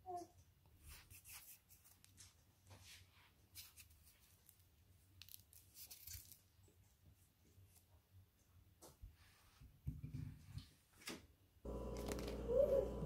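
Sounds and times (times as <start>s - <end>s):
low steady hum: 11.7s - 13.0s.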